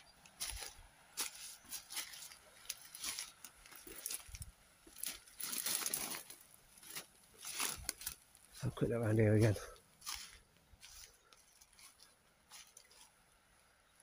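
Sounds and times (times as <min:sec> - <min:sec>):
footsteps crunching dry leaves: 0:00.0 - 0:13.5
undergrowth rustling and crackling: 0:00.0 - 0:14.0.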